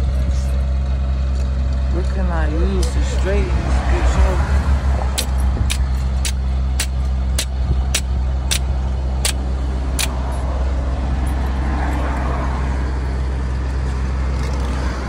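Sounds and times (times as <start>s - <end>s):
hammer striking metal: 5.2s - 9.4s.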